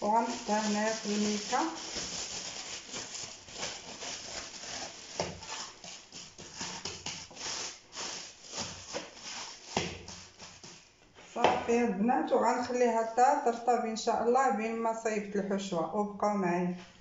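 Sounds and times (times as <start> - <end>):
plastic bag crinkling: 0.0 - 10.9.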